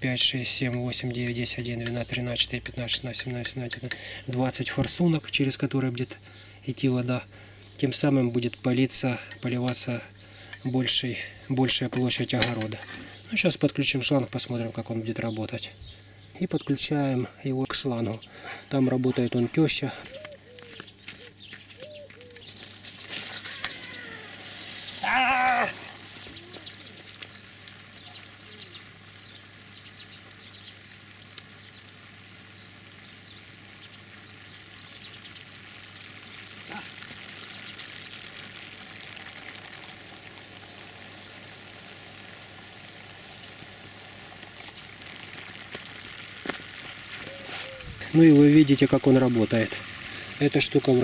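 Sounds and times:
sprinkler spray hissing: 20.1s - 51.0s
loud pitched call: 23.4s - 27.0s.

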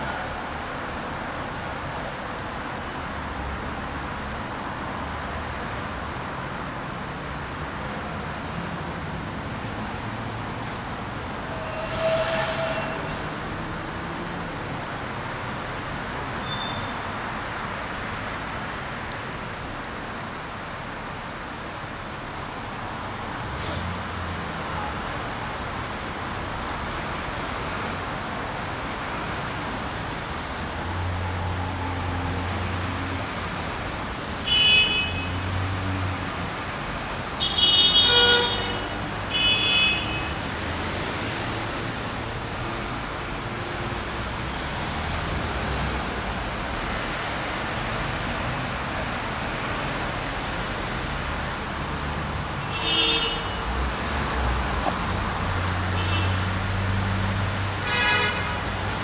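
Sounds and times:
street traffic: 0.0s - 59.0s
car horn honking: 37.4s - 40.3s, 57.8s - 58.6s.

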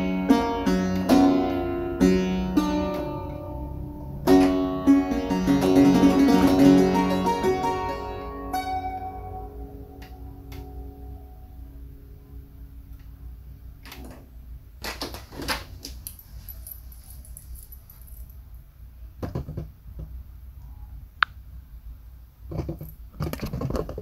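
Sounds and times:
low steady hum: 0.0s - 24.0s
handling clicks and rustles: 14.8s - 18.6s.

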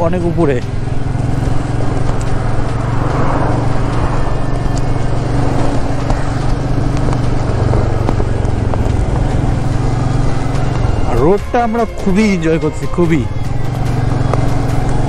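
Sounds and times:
motorcycle engine running: 0.0s - 15.0s
road noise: 0.0s - 15.0s
wind rushing: 0.7s - 11.4s.

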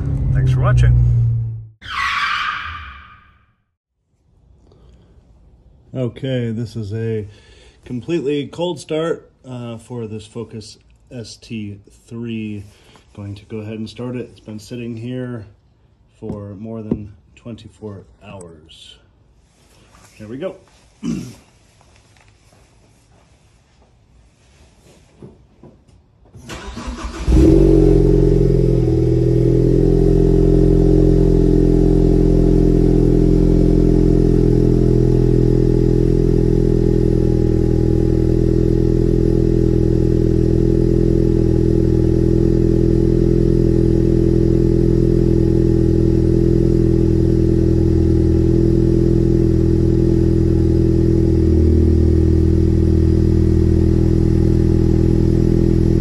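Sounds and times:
car engine starting and idling: 0.0s - 1.8s, 26.4s - 56.0s.

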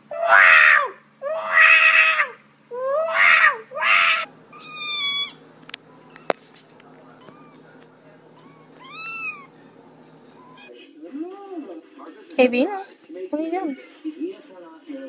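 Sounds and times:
cat yowling: 0.1s - 5.4s, 7.2s - 7.8s, 8.4s - 9.6s, 10.4s - 10.7s
high-pitched meow: 2.9s - 5.3s, 8.4s - 9.5s.

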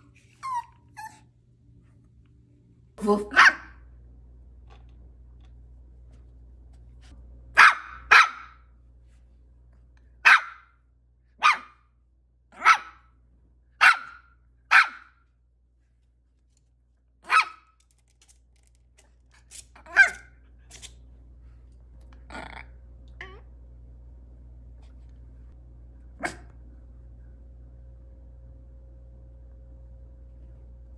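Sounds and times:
puppy yapping: 7.6s - 8.6s, 11.4s - 11.8s, 17.3s - 17.7s.

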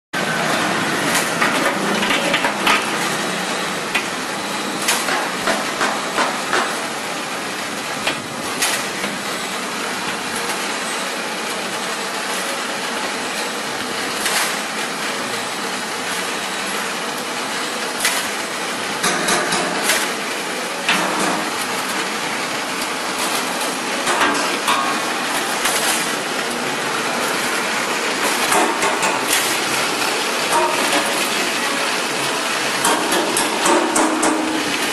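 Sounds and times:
machine clattering: 18.0s - 20.2s, 27.2s - 34.9s.

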